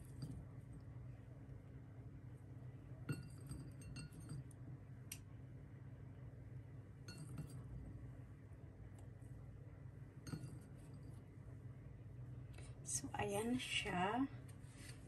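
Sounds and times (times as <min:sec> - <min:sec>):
faint low hum: 0:00.0 - 0:15.0
kitchenware clinking: 0:03.1 - 0:04.5.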